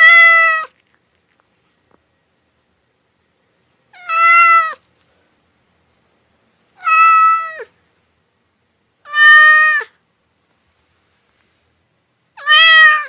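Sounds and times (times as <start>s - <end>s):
cat meowing: 0.0s - 0.7s, 3.9s - 4.8s, 6.8s - 7.7s, 9.0s - 10.0s, 12.4s - 13.0s.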